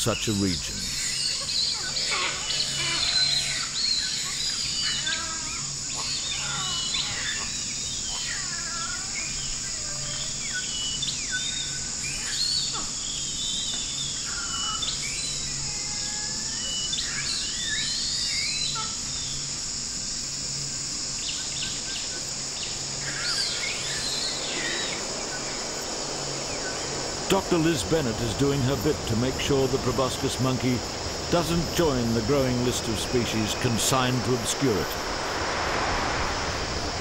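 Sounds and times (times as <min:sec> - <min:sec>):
high insect drone: 0:00.0 - 0:37.0
birds whistling and chirping: 0:00.9 - 0:19.5, 0:21.2 - 0:27.1.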